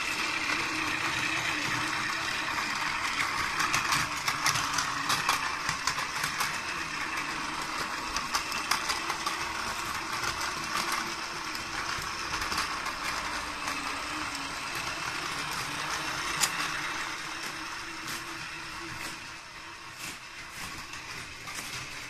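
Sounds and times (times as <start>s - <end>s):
toy train motor whirring: 0.0s - 22.0s
wheels clicking over track joints: 0.0s - 22.0s.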